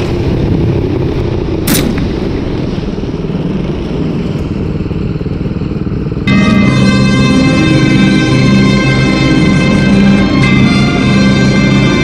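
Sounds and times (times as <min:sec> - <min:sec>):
steady low rumble: 0:00.0 - 0:12.0
rifle shot: 0:01.6 - 0:02.4.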